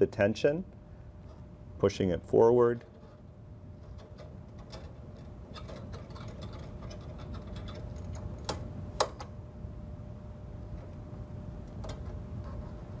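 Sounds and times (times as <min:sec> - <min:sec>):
small metal parts clicking and scraping: 0:03.8 - 0:08.2.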